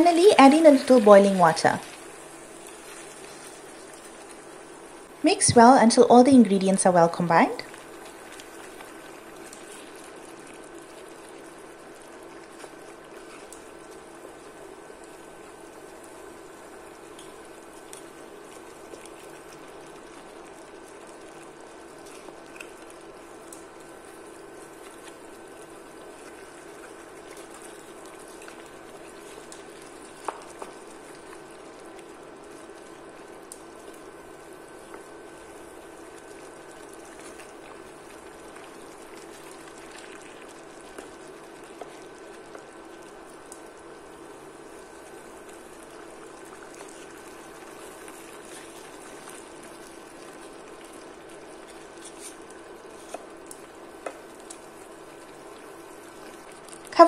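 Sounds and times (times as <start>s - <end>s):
curry bubbling in a pan: 0.0s - 57.0s.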